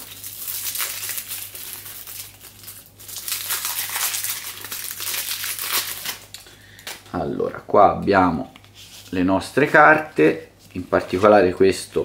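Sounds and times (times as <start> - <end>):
plastic shrink-wrap crinkling: 0.0 - 7.0.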